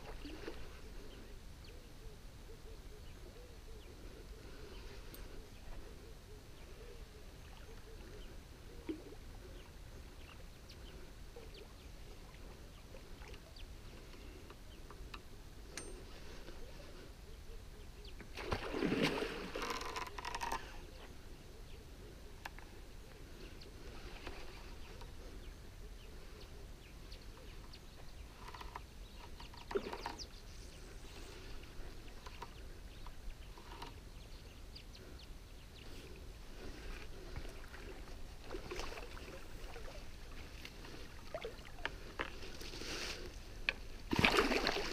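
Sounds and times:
faint lakeside background: 0.0 - 44.9
water splashing: 18.4 - 20.0, 40.9 - 41.8, 44.1 - 44.9.

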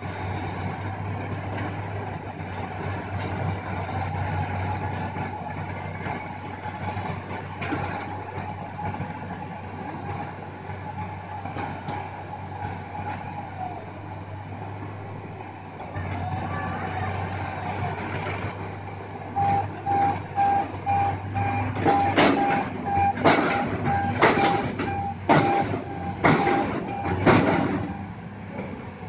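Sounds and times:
diesel engine running: 0.0 - 29.0
hydraulic whine: 19.4 - 28.9
sharp metallic knocks: 21.8 - 28.0.

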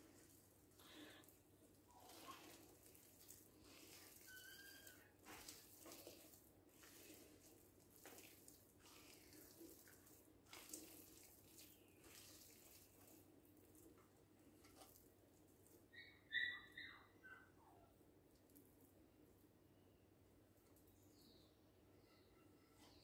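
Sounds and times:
hands kneading sticky dough: 0.0 - 15.9.

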